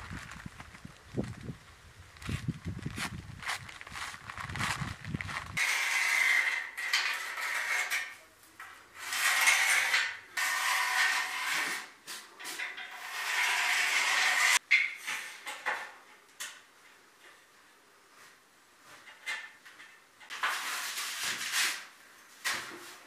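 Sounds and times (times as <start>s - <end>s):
hand tool scraping concrete: 5.5s - 8.2s, 8.9s - 14.6s.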